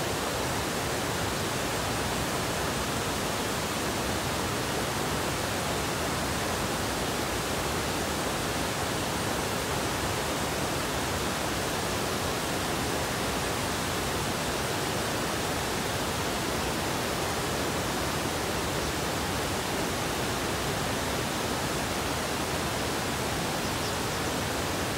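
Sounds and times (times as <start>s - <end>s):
river water rushing over weirs: 0.0s - 24.9s.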